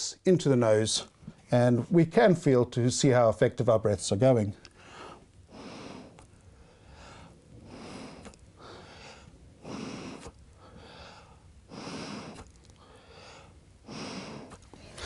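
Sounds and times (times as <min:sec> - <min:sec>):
person breathing into manikin: 0:04.8 - 0:15.0.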